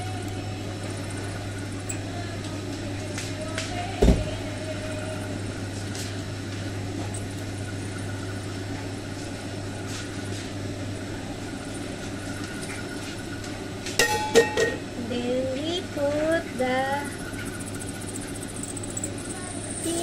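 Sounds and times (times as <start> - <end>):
kitchen equipment humming: 0.0 - 20.0
metal bowl clanking: 14.0 - 14.8.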